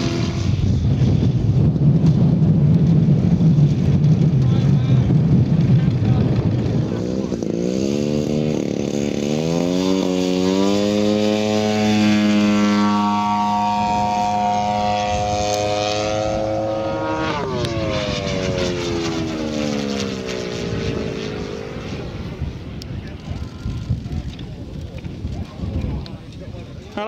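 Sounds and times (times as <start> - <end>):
model plane engine and propeller: 0.0 - 27.0.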